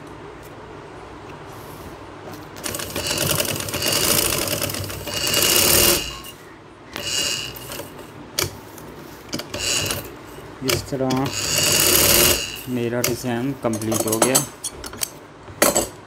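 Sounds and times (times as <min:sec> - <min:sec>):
sewing machine stitching: 0:02.6 - 0:06.4, 0:07.0 - 0:08.6, 0:09.3 - 0:13.2.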